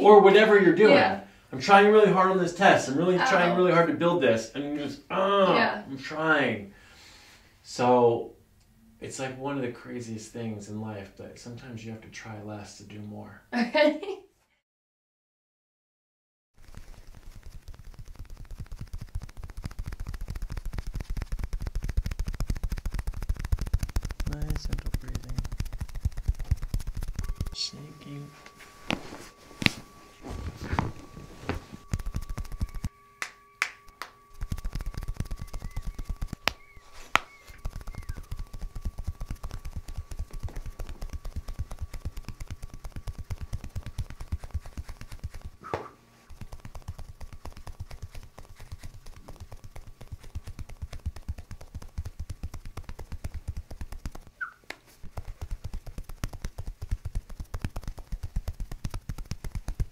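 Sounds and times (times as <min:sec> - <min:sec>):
hands slapping bare back: 0:18.7 - 0:27.5, 0:28.9 - 0:29.9, 0:30.7 - 0:59.9.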